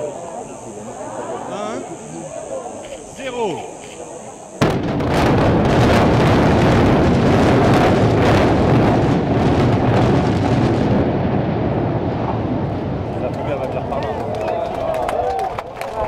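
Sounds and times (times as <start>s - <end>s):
sharp explosive cracks: 4.6s - 13.7s
building collapsing rumble: 4.6s - 15.6s.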